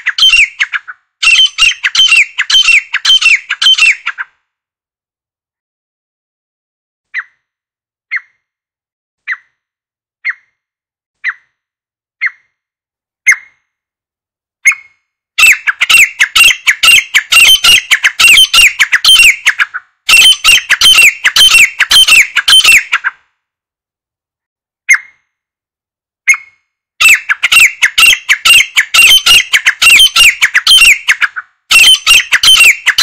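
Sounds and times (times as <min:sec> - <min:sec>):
francolin calling: 0:00.0 - 0:04.1, 0:15.4 - 0:23.0, 0:27.0 - 0:33.0.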